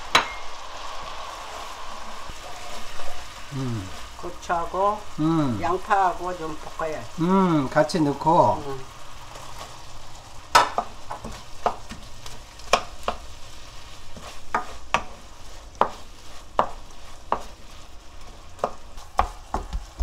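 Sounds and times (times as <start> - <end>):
sauce bubbling and sizzling in pan: 0.0 - 20.0
wooden spatula knocking against pan: 15.8 - 16.0, 16.6 - 17.5, 18.6 - 20.0.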